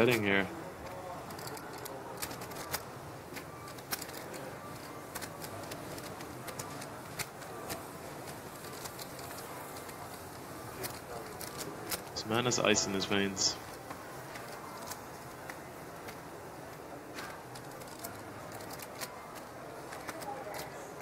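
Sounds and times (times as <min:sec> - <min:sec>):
steady background hiss: 0:00.0 - 0:19.7
poker chips clicking together: 0:01.2 - 0:12.2, 0:17.2 - 0:20.8.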